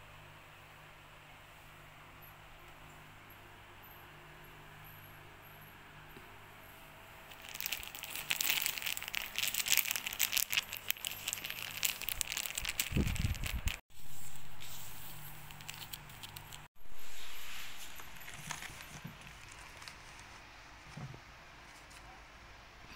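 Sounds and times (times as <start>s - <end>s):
plastic wrapping crinkling: 7.3s - 14.6s, 15.3s - 16.7s, 17.8s - 20.4s.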